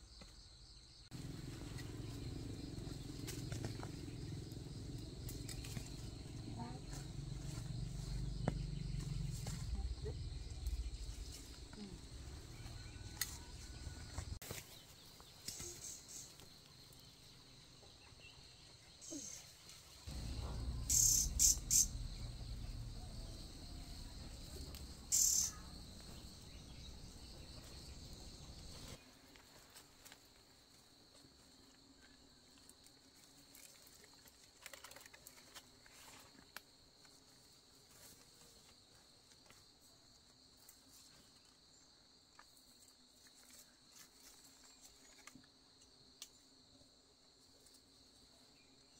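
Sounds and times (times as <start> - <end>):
insects chirring: 0.0 - 48.9.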